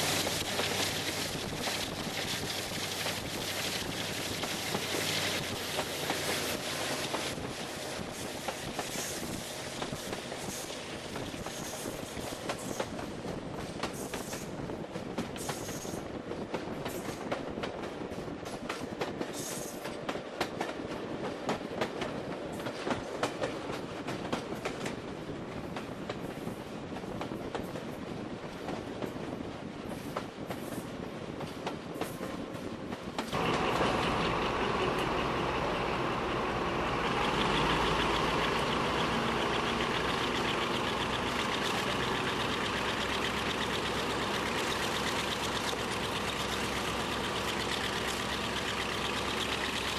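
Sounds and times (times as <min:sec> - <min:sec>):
heavy diesel engine: 0:00.0 - 0:08.4, 0:33.3 - 0:49.9
train wheels rumbling on rails: 0:00.0 - 0:49.9.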